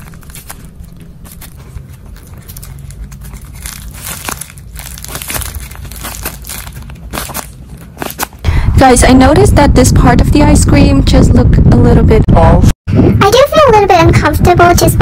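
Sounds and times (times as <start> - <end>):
paper crinkling: 0.0 - 8.4.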